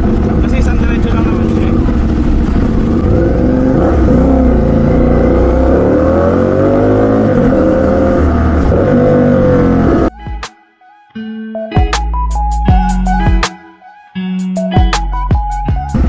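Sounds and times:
motorcycle engine revving: 0.0s - 10.1s.

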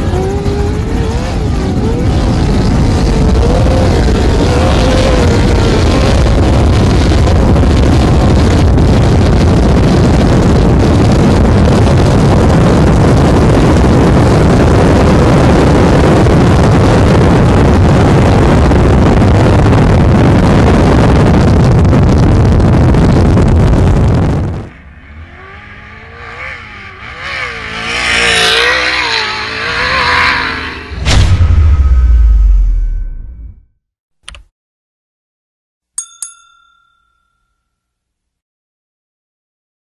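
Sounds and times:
truck engine revving: 0.0s - 8.5s, 23.7s - 31.2s.

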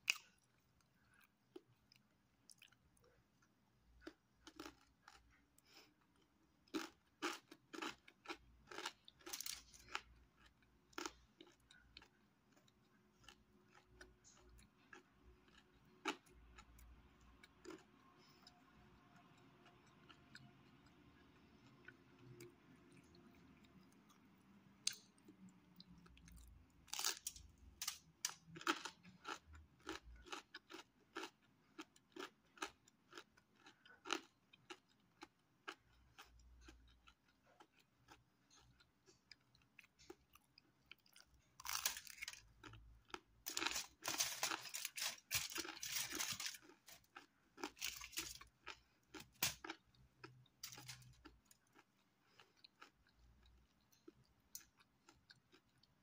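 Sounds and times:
crunching pizza crust: 41.0s - 52.8s.

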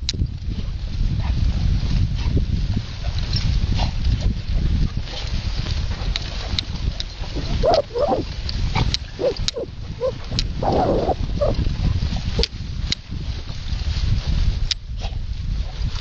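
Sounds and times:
low rumble: 7.2s - 12.8s
dog grunting: 7.5s - 8.2s, 9.2s - 11.6s.

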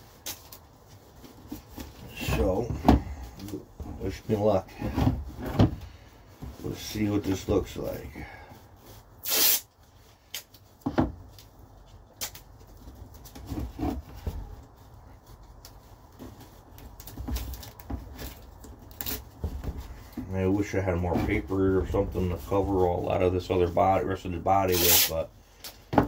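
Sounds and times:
tape ripping off roll: 9.2s - 10.6s, 16.5s - 19.4s, 24.7s - 25.2s.

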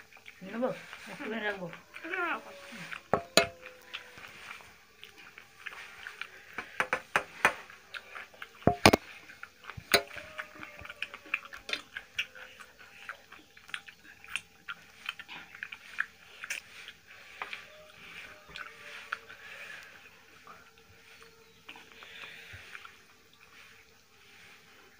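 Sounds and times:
chewing and mouth clicks: 0.0s - 24.9s
fingers working food on plates: 0.2s - 20.1s
sharp knocks on steel plate: 3.2s - 3.5s, 8.7s - 9.0s.

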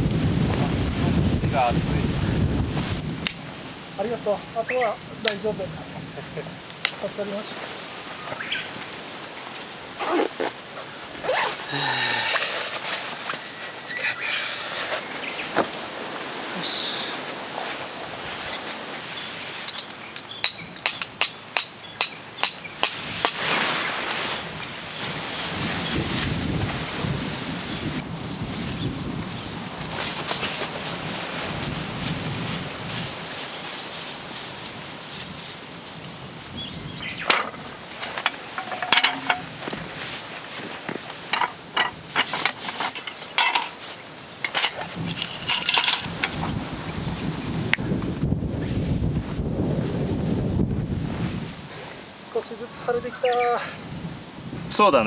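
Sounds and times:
wind buffeting microphone: 0.0s - 55.0s
fabric rustling: 8.7s - 19.9s, 28.3s - 36.0s, 37.5s - 46.2s
metal frame parts clinking: 19.6s - 22.6s, 37.3s - 39.5s, 41.3s - 43.8s, 44.4s - 46.4s.

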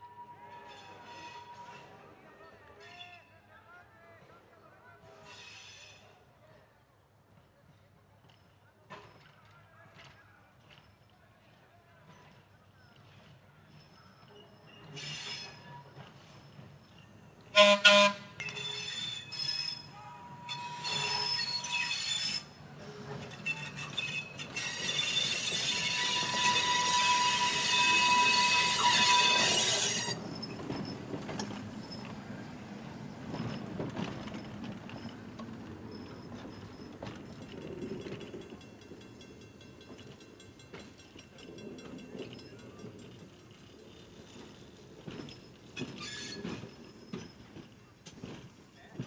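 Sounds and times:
wheels squealing on rails: 0.0s - 3.4s, 5.1s - 6.2s, 12.1s - 49.0s
train warning horn blast: 17.5s - 18.4s.

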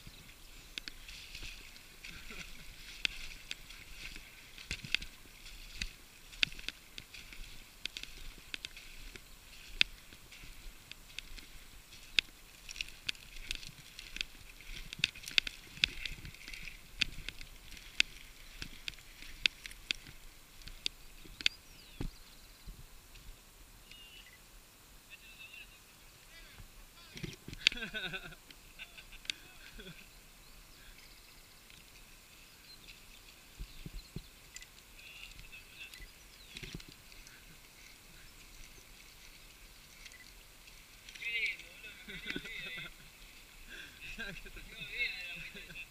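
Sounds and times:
twigs crackling under bike tyres: 0.0s - 23.4s, 27.0s - 45.9s
bird chirps: 23.8s - 24.4s, 32.4s - 39.0s.

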